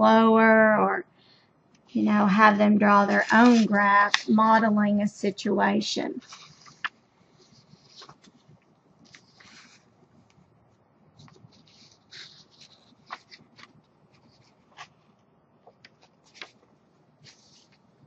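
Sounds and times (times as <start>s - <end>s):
paper rustling: 3.0s - 4.6s, 6.2s - 9.9s, 11.2s - 18.0s.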